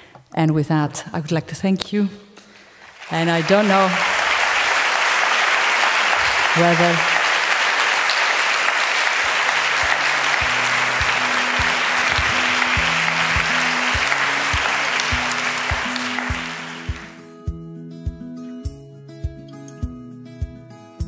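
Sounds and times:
audience applauding: 0:02.8 - 0:17.2.

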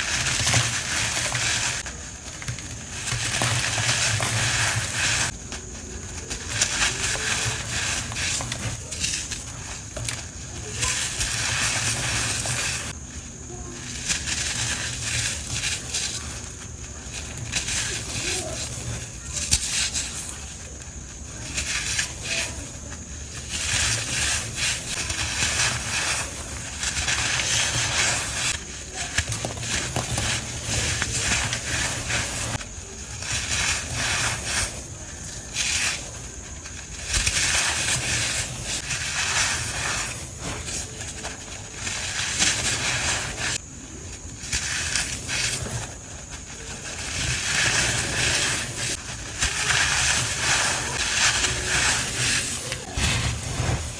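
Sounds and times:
packed powder crunching: 0:00.0 - 0:53.9.

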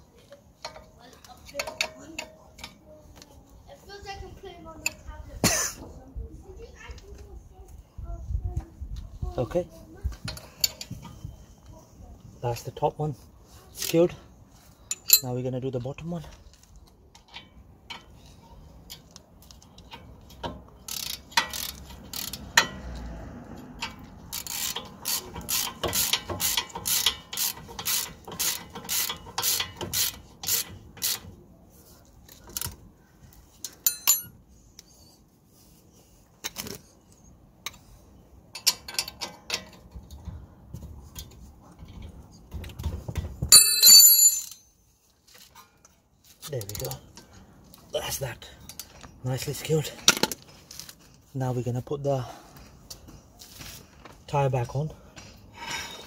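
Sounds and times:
metallic tool clinks: 0:33.8 - 0:34.4, 0:43.5 - 0:44.6
ringing metal clatter: 0:33.8 - 0:34.4, 0:43.5 - 0:44.7.

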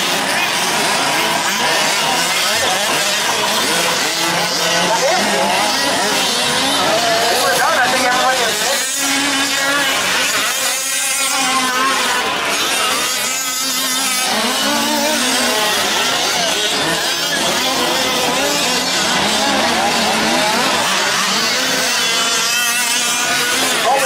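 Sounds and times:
small two-stroke engines revving: 0:00.0 - 0:24.0.

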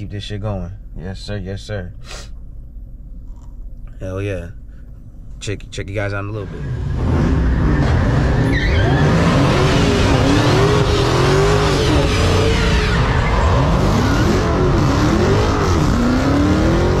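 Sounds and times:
car engine revving: 0:06.4 - 0:17.0.

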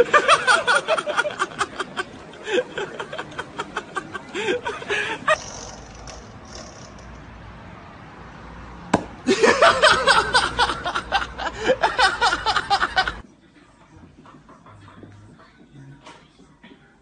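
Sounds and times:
people laughing and shouting: 0:00.0 - 0:05.4.

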